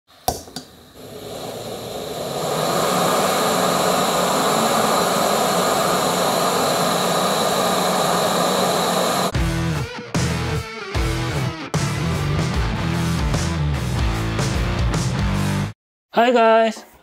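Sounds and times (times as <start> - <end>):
gas burner rushing: 0.1 - 9.4.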